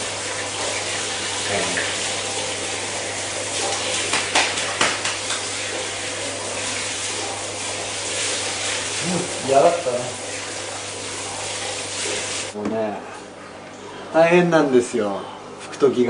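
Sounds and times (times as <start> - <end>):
water running: 0.0 - 12.6.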